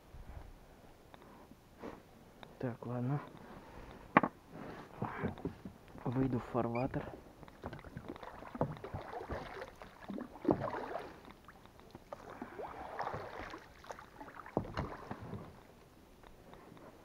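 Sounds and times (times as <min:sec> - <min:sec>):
oars splashing in water: 0:06.0 - 0:15.9
oars knocking in oarlocks: 0:07.3 - 0:12.3.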